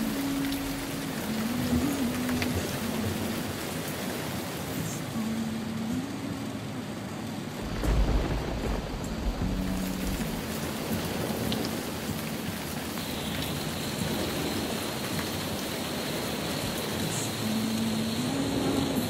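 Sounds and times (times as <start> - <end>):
heavy rain on car roof: 0.0 - 19.0.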